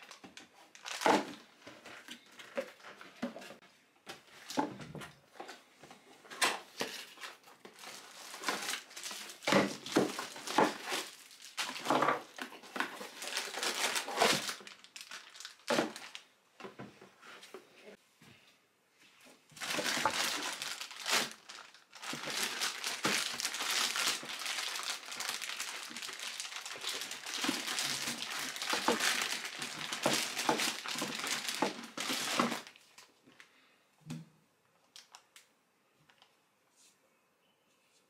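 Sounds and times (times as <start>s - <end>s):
plastic bag crinkling: 0.0s - 1.4s, 6.7s - 16.3s, 19.6s - 33.1s.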